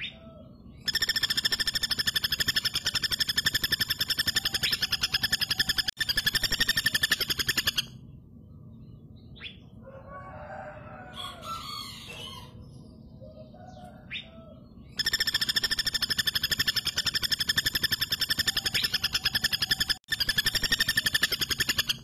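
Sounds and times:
woodpecker rattling call: 0.8s - 8.0s, 14.9s - 22.0s.

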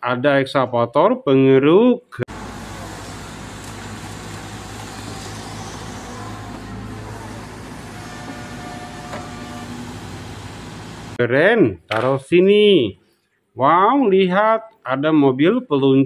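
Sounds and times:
excavator diesel engine running: 2.3s - 11.2s
faint high whine: 2.3s - 11.2s.

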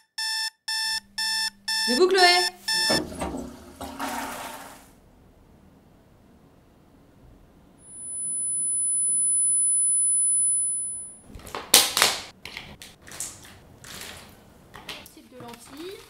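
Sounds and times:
high steady tone: 0.0s - 3.1s, 7.8s - 11.2s.

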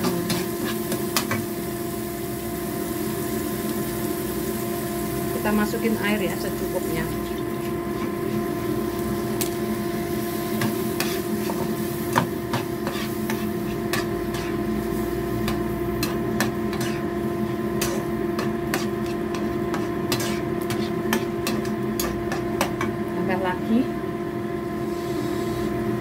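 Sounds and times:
spatula scraping frying pan: 0.0s - 1.5s, 7.0s - 8.8s, 10.4s - 22.9s
extractor fan humming: 0.0s - 26.0s.

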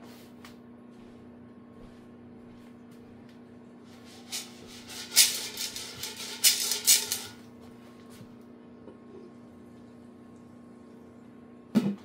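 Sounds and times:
popcorn kernels rattling in pot: 4.0s - 7.4s.

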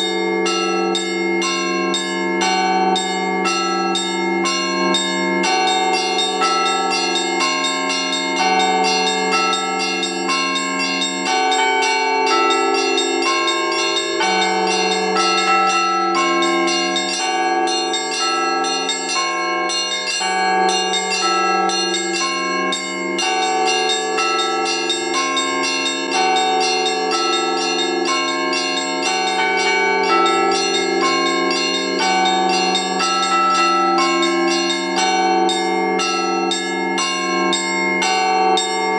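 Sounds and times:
deep bells ringing: 0.0s - 38.9s
small treble bells ringing: 0.0s - 38.9s.

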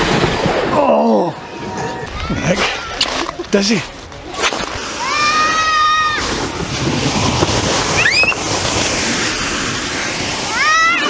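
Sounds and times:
steady rushing noise: 1.4s - 11.0s
riders squealing: 7.8s - 8.7s.

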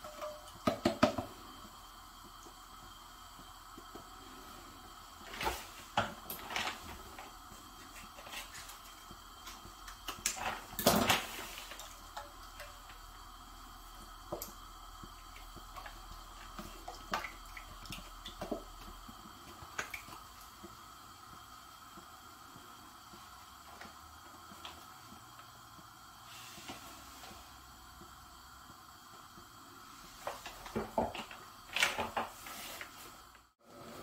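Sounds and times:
utensils tapping and knocking: 0.0s - 1.4s.

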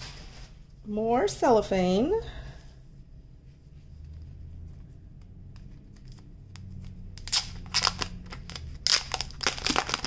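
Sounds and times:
cellophane wrap crinkling: 7.2s - 10.0s.

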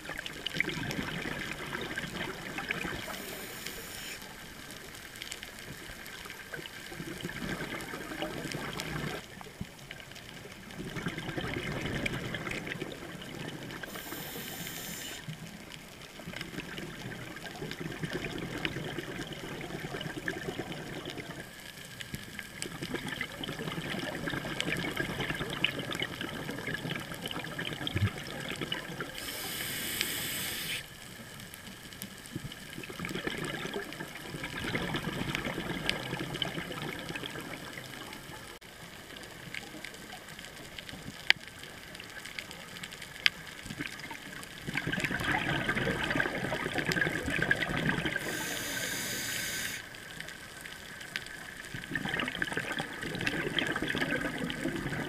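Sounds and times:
exhaust bubbles bursting: 0.0s - 3.1s, 6.9s - 9.2s, 10.8s - 13.9s, 16.5s - 21.4s, 22.6s - 29.2s, 32.8s - 38.3s, 43.8s - 48.4s, 51.7s - 55.0s
short hiss: 3.1s - 4.3s, 13.9s - 15.3s, 29.2s - 30.9s, 48.2s - 49.9s
diver breathing through regulator: 13.8s - 15.2s, 29.2s - 30.9s, 48.2s - 49.8s.

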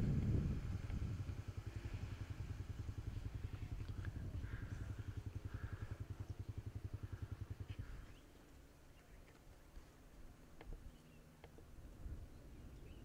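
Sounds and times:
small engine idling: 0.0s - 13.0s.

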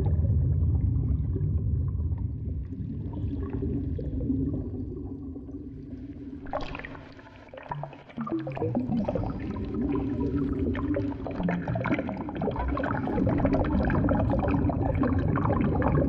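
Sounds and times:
deep underwater rumble: 0.0s - 16.0s
water bubbling: 0.0s - 16.0s.

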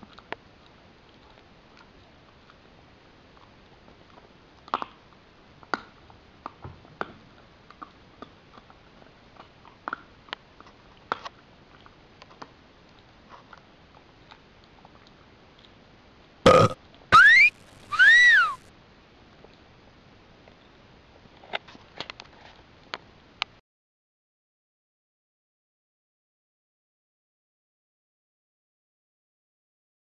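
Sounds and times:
dog chewing a bone: 3.3s - 15.8s
dog squeaky calls: 17.2s - 18.6s.

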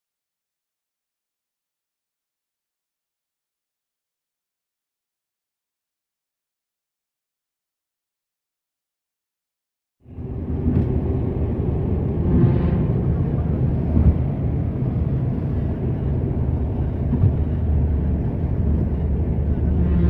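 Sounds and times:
car engine and road rumble: 10.0s - 20.0s.

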